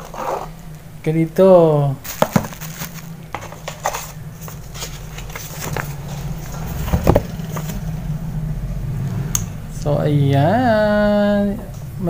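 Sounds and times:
steady low hum: 0.0 - 12.0
cardboard box handling: 2.1 - 7.8.

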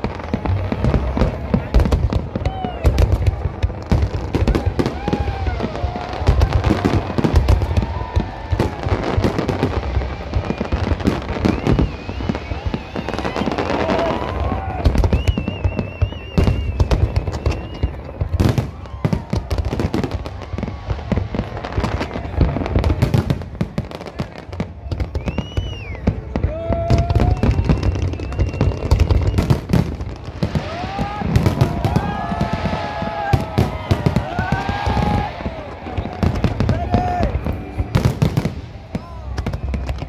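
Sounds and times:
fireworks bangs and crackles: 0.0 - 40.0.

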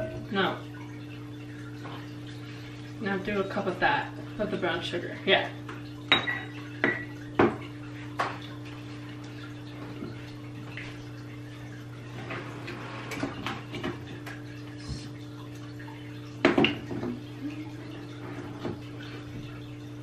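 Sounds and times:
measuring cup clinking on glass jar: 6.1 - 7.1.

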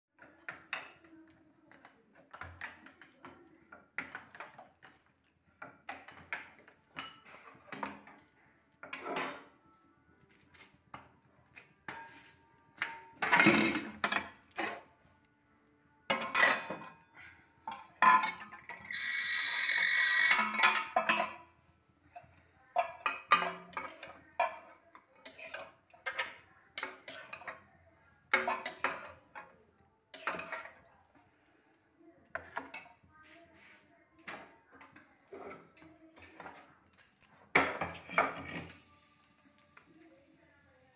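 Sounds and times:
metal cookware clinking: 0.2 - 9.6, 11.9 - 14.9, 16.1 - 21.5, 22.2 - 27.6, 28.3 - 29.5, 30.1 - 30.8, 35.3 - 39.9.

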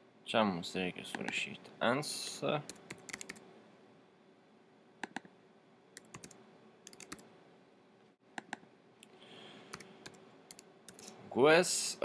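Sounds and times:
faint keyboard typing: 2.6 - 3.5, 5.0 - 5.3, 6.0 - 7.3, 8.4 - 8.6, 9.7 - 11.2.

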